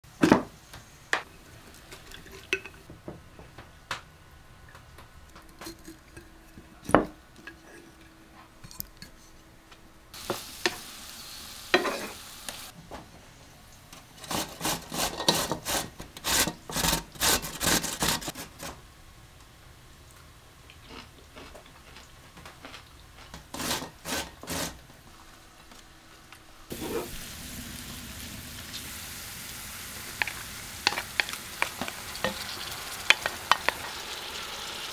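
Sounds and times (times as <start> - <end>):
vegetables sizzling in a pan: 10.2 - 12.8, 26.7 - 34.9
grating on metal box grater: 14.2 - 18.5, 23.5 - 24.8.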